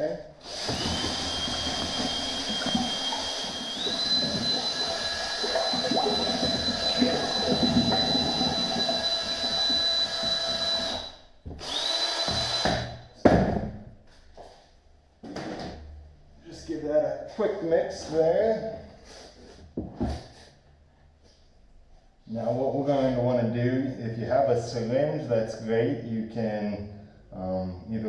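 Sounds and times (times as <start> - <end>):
slurry churning: 0.4 - 10.7
drill motor whining: 0.4 - 13.0.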